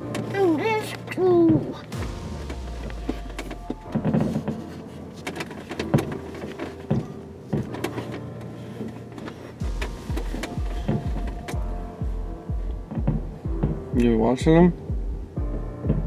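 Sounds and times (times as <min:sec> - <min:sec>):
low hum: 0:01.9 - 0:05.2, 0:09.6 - 0:14.0.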